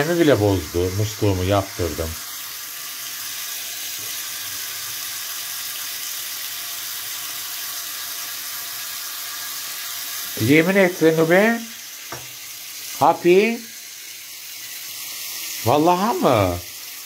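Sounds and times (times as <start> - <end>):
tap water running into sink: 0.0 - 17.0.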